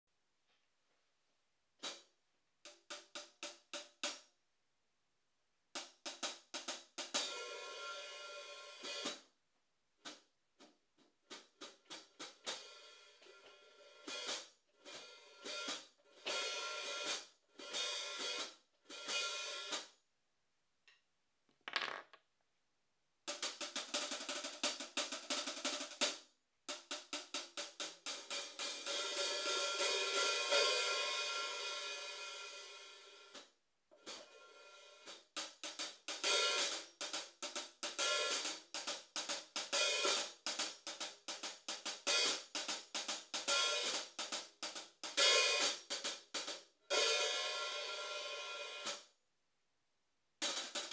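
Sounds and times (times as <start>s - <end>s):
hi-hats struck with drumstick: 23.3s - 32.6s, 35.4s - 47.4s, 50.4s - 50.9s.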